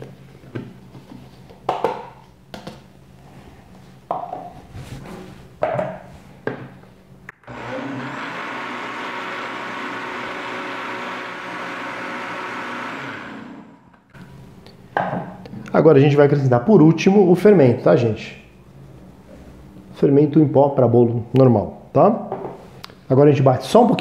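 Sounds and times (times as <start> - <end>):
blender motor running: 7.4 - 14.1.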